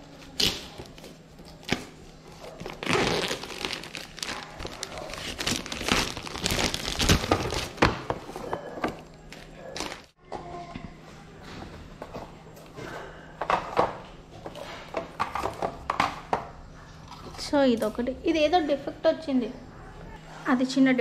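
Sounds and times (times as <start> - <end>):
plastic film crinkling: 0.3 - 8.0.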